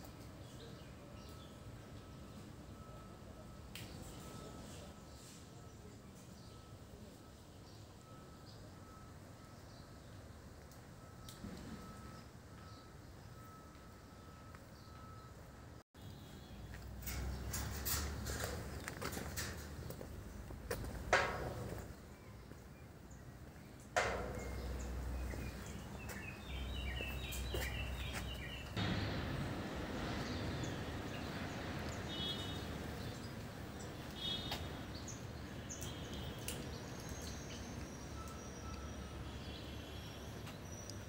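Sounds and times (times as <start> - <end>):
outdoor background noise: 0.0 - 41.0
small birds chirping: 21.8 - 28.8.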